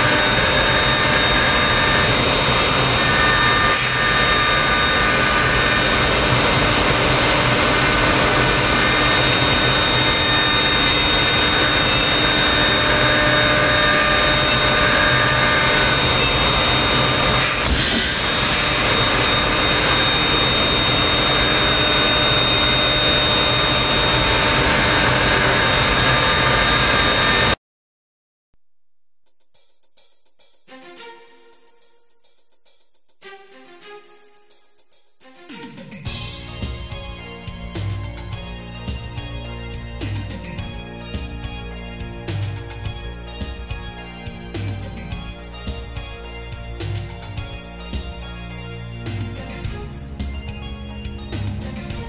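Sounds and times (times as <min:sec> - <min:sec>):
cnc router cutting with high whine: 0:00.0 - 0:27.6.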